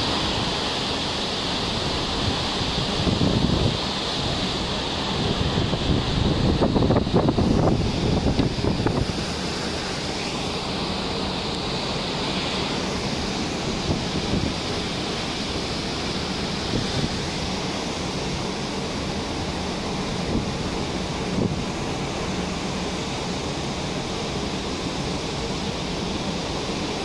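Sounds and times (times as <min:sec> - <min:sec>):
rough sea breaking against ship: 0:00.0 - 0:27.0
wind over microphone: 0:01.6 - 0:22.4.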